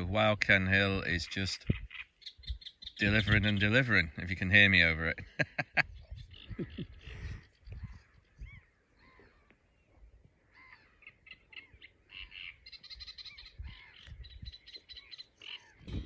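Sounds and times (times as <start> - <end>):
wind rumble on microphone: 0.0 - 8.8, 12.9 - 16.0
bird singing short repeated notes: 1.6 - 4.0, 5.9 - 16.0.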